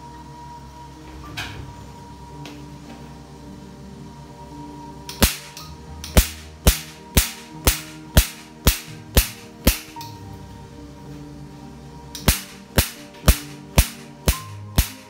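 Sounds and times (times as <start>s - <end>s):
laser pulses snapping: 5.1s - 10.0s, 12.2s - 15.0s.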